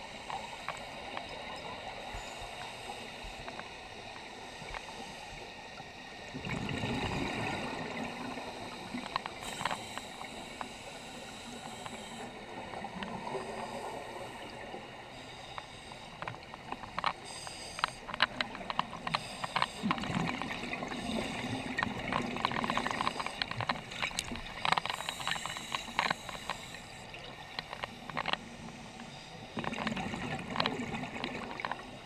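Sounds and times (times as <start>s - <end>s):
underwater hiss: 0.0s - 18.2s, 18.9s - 20.1s, 20.8s - 21.8s, 24.5s - 29.6s
small underwater clicks: 0.0s - 32.0s.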